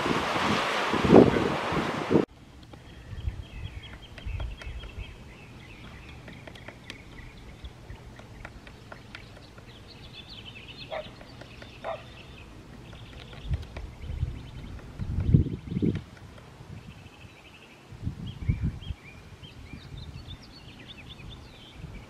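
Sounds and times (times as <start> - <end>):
small birds twittering: 2.6 - 22.0
falling bird calls: 2.7 - 16.2.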